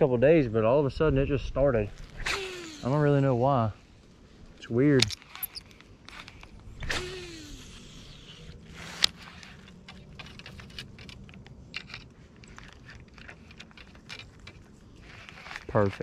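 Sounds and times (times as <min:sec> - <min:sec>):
fishing tackle clicks and scrapes: 0:04.5 - 0:16.0.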